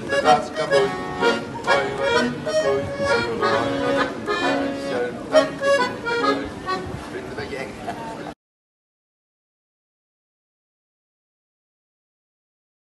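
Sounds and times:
piano accordion playing a tune: 0.0 - 7.0.

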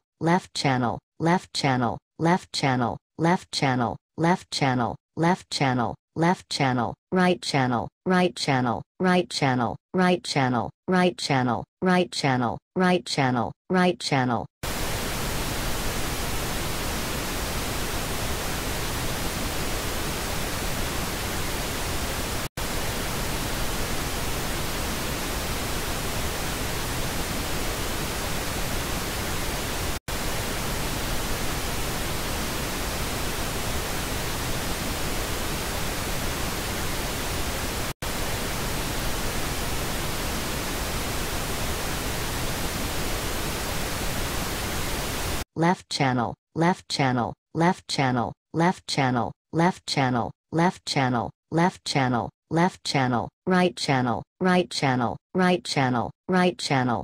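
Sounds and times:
pink noise hiss: 14.6 - 45.4.

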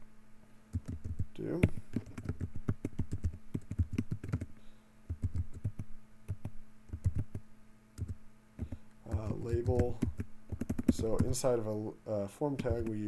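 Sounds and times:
typing on computer keyboard: 0.7 - 4.5, 5.1 - 7.4, 8.0 - 11.4.

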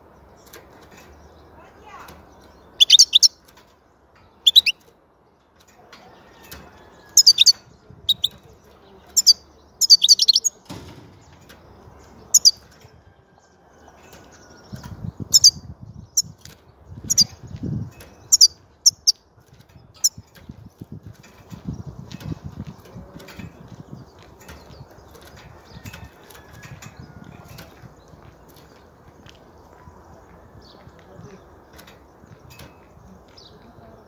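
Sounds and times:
bird twittering calls: 0.0 - 3.5, 4.2 - 4.9, 7.0 - 10.6, 11.3 - 12.8, 14.1 - 34.0
wing flutters and rustling: 10.6 - 29.8.

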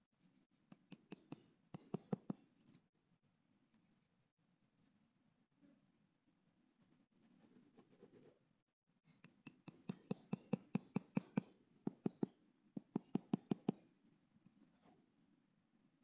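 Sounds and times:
hammer tapping wooden stake: 9.3 - 13.8.

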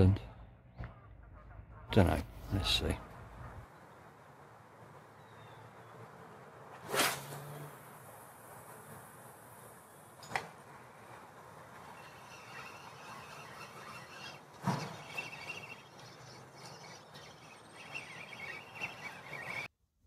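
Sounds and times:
low outdoor hush: 0.0 - 19.7
fishing rod cast swish: 6.8 - 7.5.

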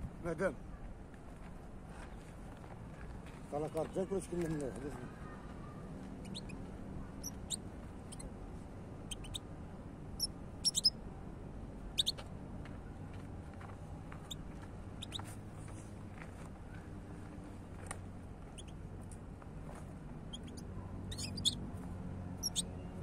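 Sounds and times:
goldfinch chirping: 6.2 - 6.6, 7.2 - 8.3, 9.1 - 9.4, 10.2 - 11.0, 11.9 - 12.2, 15.0 - 15.3, 20.3 - 21.6, 22.4 - 22.7.

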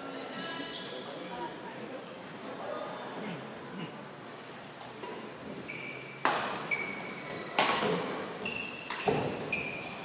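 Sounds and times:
shoes squeaking on court: 4.3 - 10.0
racket hitting shuttlecock: 6.2 - 6.7, 7.6 - 8.2, 8.8 - 9.5.

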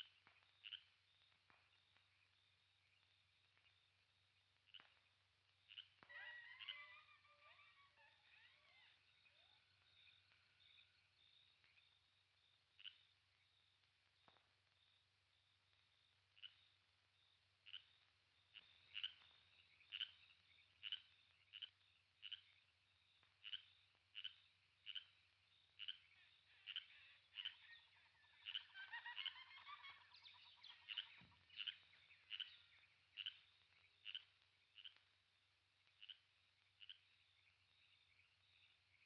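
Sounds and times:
small animal chirping call: 5.7 - 9.6, 18.6 - 20.2, 23.4 - 25.2, 25.8 - 35.0.

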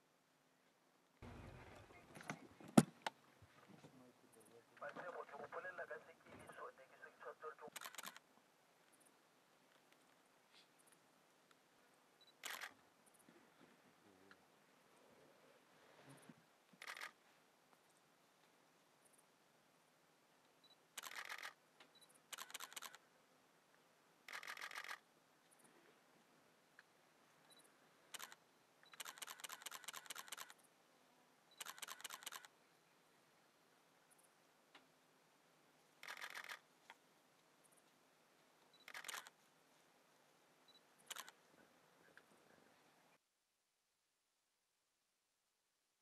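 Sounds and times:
camera shutter rapid clicks: 7.7 - 8.2, 12.4 - 12.8, 16.8 - 17.2, 21.0 - 21.6, 22.3 - 23.0, 24.3 - 25.0, 28.1 - 30.6, 31.6 - 32.5, 36.0 - 36.6, 38.8 - 39.4, 41.1 - 41.4.

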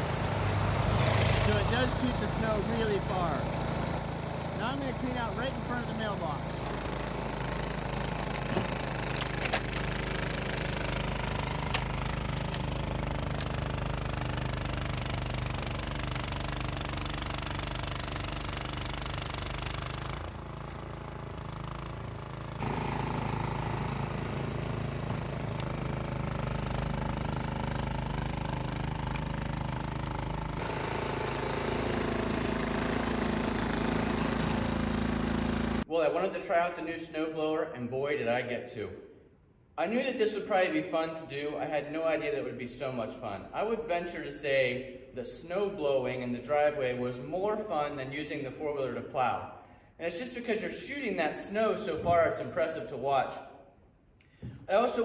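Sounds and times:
auger churning snow: 0.0 - 35.9
snowblower engine running: 0.0 - 35.9.

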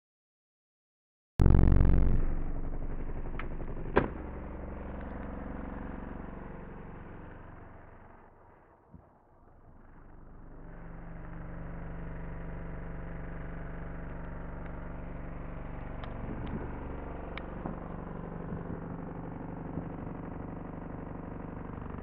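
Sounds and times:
bass test tone: 1.4 - 8.2.

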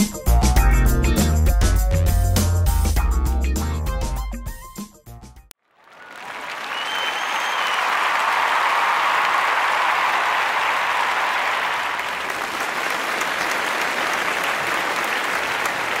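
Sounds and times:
crowd applauding: 5.6 - 16.0.

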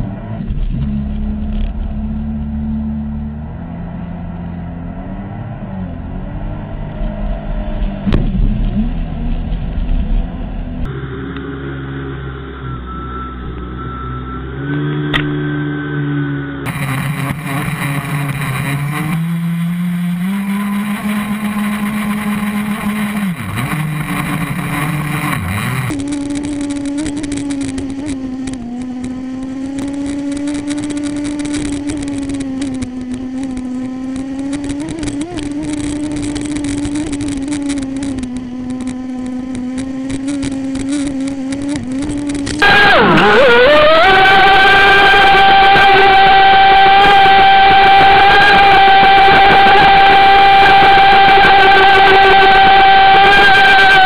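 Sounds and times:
model boat motor at high speed: 10.9 - 54.0.

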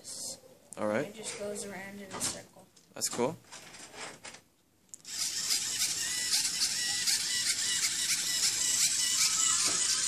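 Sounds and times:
robot motors whirring: 5.0 - 10.0.

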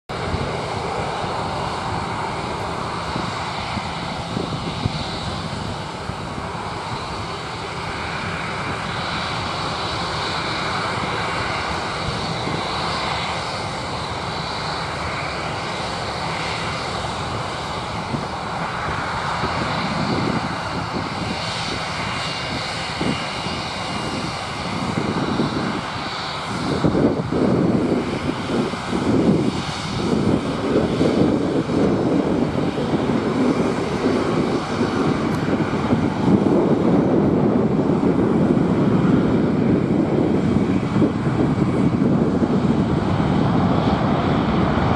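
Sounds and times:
jet engines taxiing: 0.1 - 44.9
turbofan whine: 0.1 - 44.9
broad rumble: 17.2 - 44.9.

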